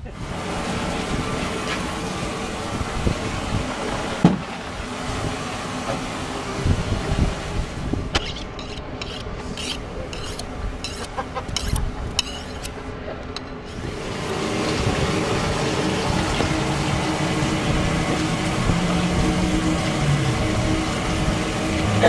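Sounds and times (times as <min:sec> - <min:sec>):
running water: 0:00.0 - 0:12.8, 0:13.6 - 0:22.0
low hum: 0:00.0 - 0:22.0
knife scraping on sharpening steel: 0:08.2 - 0:12.8.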